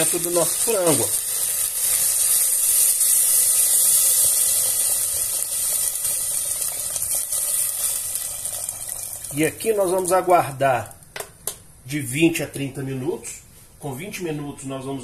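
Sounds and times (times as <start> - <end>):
hot pan sizzling: 0.0 - 11.1.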